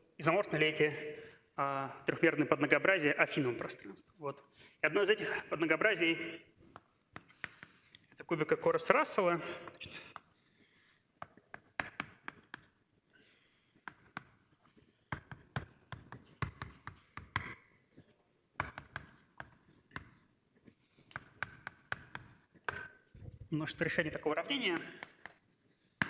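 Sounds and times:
writing on a board: 0:06.6 - 0:08.0, 0:10.1 - 0:23.1, 0:24.6 - 0:26.0.

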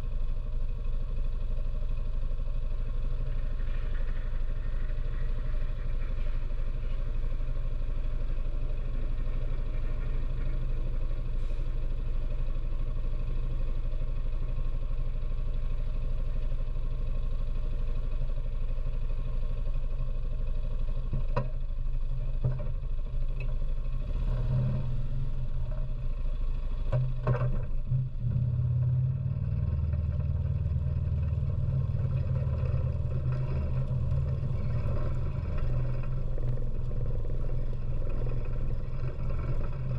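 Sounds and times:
atv engine idling: 0:00.0 - 0:24.0, 0:24.8 - 0:39.9
sharp clicks and knocks: 0:26.9 - 0:27.8.

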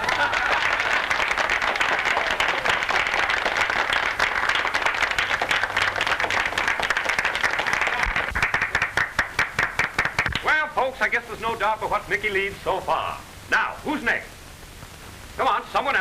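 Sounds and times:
crowd applauding: 0:00.0 - 0:10.5.

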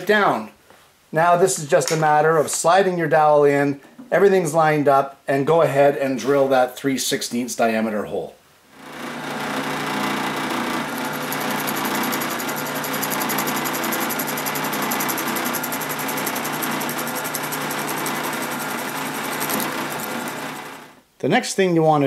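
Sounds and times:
drill bit boring into wood: 0:08.8 - 0:21.0
drill press motor running: 0:08.8 - 0:21.0.

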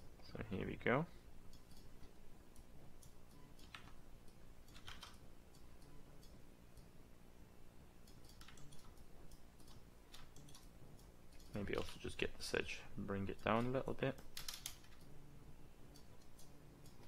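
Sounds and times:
low steady hum: 0:00.0 - 0:17.0
keyboard keystrokes: 0:03.0 - 0:06.4, 0:08.1 - 0:10.7, 0:13.5 - 0:15.1.

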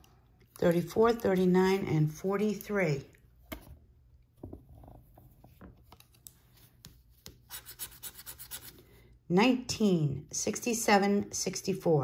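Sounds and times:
lottery ticket being scratched: 0:07.4 - 0:08.8.

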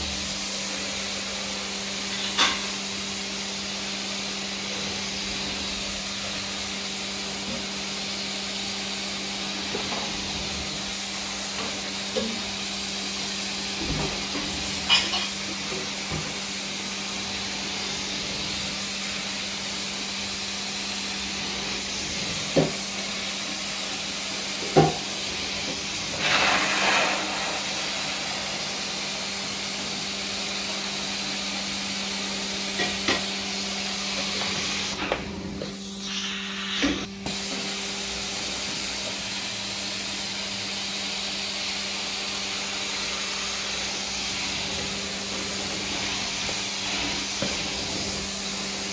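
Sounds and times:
vacuum motor hum: 0:09.2 - 0:39.3, 0:42.6 - 0:48.9.

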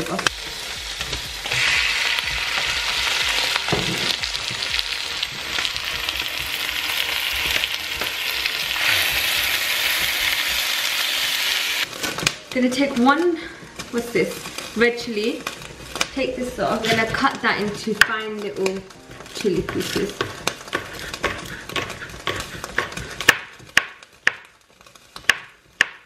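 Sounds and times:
chicken sizzling in oil: 0:00.0 - 0:11.9.

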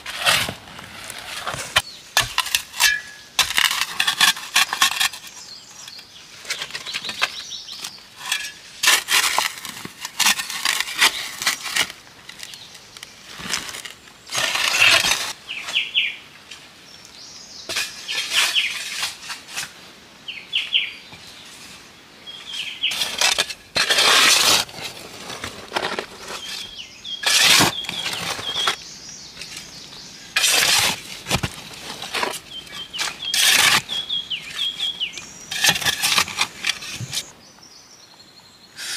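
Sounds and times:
metal spade digging into soil: 0:00.0 - 0:05.4, 0:07.0 - 0:11.9, 0:22.9 - 0:28.8, 0:30.3 - 0:37.3
birds chirping: 0:26.2 - 0:30.8, 0:32.1 - 0:38.9.

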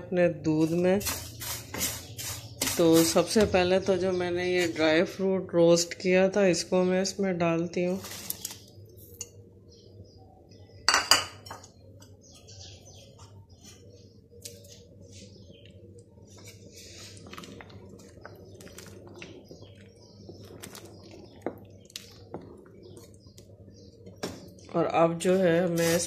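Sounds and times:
wooden spoon scraping a pot: 0:00.6 - 0:03.5.

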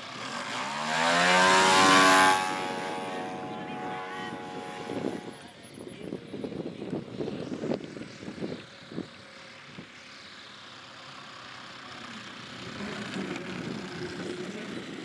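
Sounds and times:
model aeroplane engine and propeller: 0:00.0 - 0:15.0.

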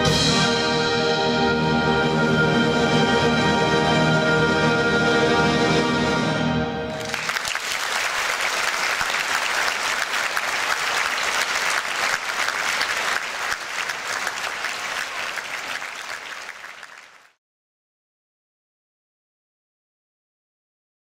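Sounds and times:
large audience applauding: 0:06.9 - 0:17.4.

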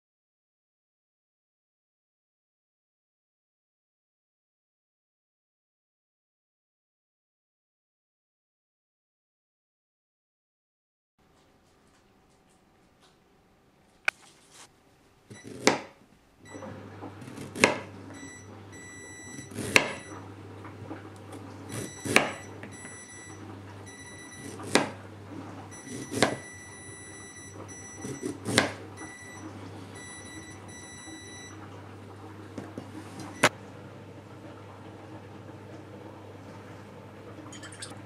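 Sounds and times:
steady low hum: 0:16.1 - 0:38.0.

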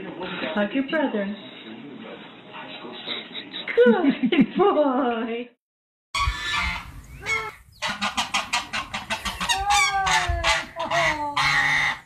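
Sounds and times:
fowl clucking: 0:06.2 - 0:12.0
long drawn-out fowl call: 0:06.2 - 0:12.0.

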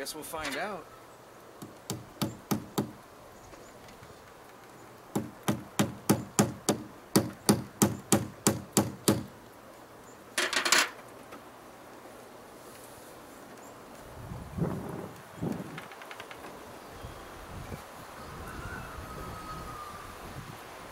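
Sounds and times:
hammer tapping on wood: 0:01.6 - 0:03.0, 0:05.1 - 0:09.3.

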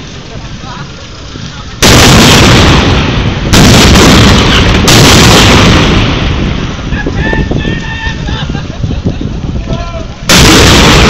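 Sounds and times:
cannon booms: 0:01.8 - 0:06.9, 0:10.3 - 0:11.0.

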